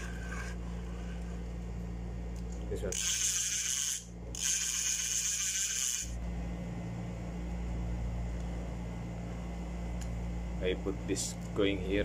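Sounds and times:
steady low hum: 0.0s - 12.0s
fishing reel gears whirring: 2.9s - 6.2s.

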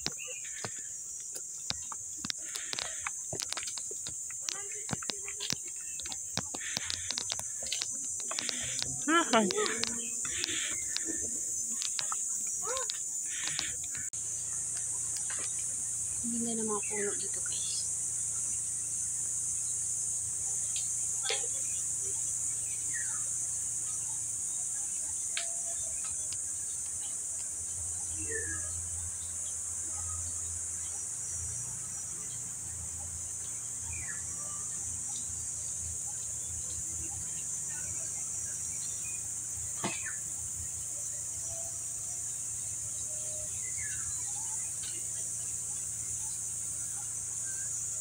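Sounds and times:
bird chirps: 0.0s - 19.8s, 33.3s - 48.0s
insects droning: 0.0s - 48.0s.

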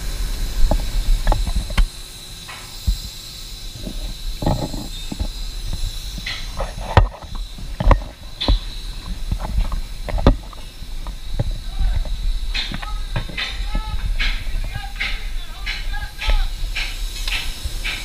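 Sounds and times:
steady hiss: 0.0s - 18.0s
wind rumbling on microphone: 3.7s - 18.0s
knocks and clanks on steel: 3.8s - 18.0s.

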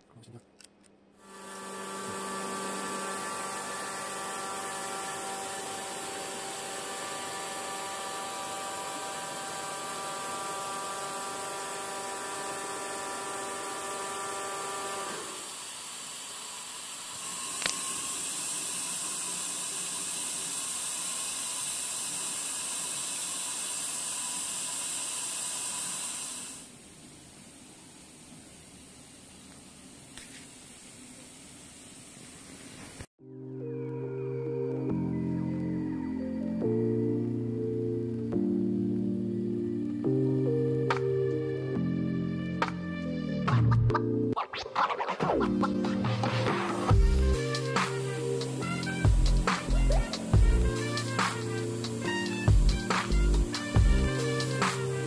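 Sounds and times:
printer whine of held tones: 1.2s - 26.7s
printer hiss: 1.2s - 33.1s, 46.6s - 55.0s.

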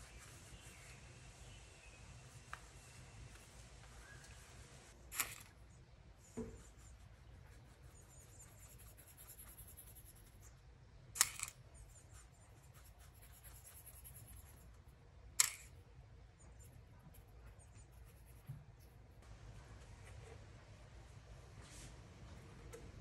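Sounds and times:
faint scratching and rustling: 0.0s - 10.6s.

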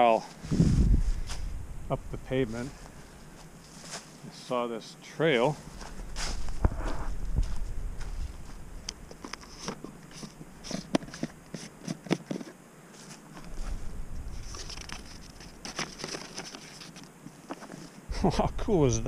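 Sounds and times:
paper rustling: 9.1s - 18.0s.

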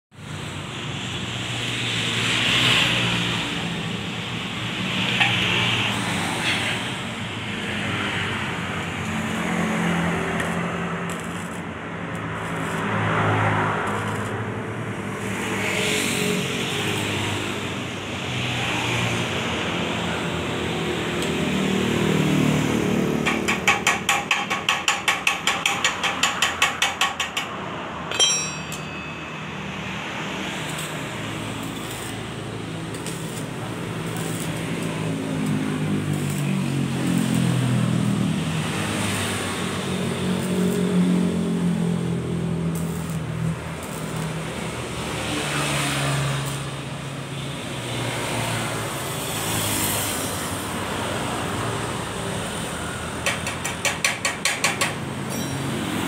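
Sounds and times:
crackling welding arc: 0.6s - 22.2s, 30.2s - 50.3s
welding strokes: 4.6s - 17.6s, 29.6s - 46.9s
metallic clang: 23.3s - 29.8s, 53.4s - 55.8s.

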